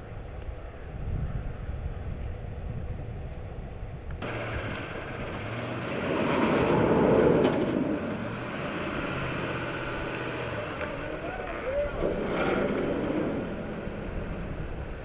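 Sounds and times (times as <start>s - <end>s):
roadside traffic: 0.0s - 15.0s
steady low engine hum: 0.0s - 15.0s
vehicle passing by: 4.2s - 15.0s.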